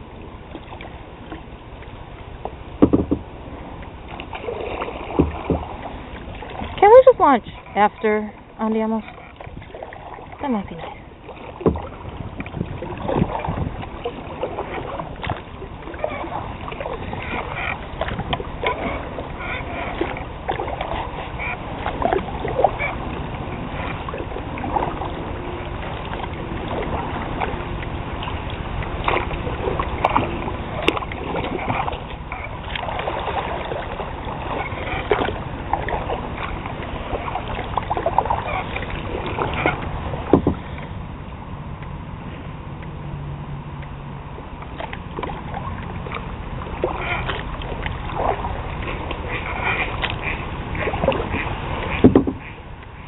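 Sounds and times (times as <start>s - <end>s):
paddle splashes: 0.0s - 53.0s
steady low rumble: 0.0s - 53.0s
light knocks: 2.8s - 3.3s.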